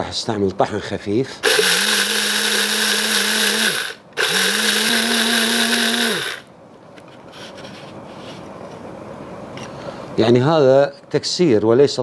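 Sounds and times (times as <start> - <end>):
spice grinder cracking rice: 1.5 - 6.4.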